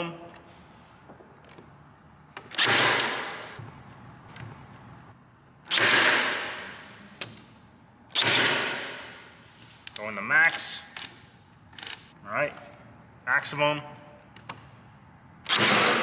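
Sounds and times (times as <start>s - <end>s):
stapler firing: 15.5s - 16.0s.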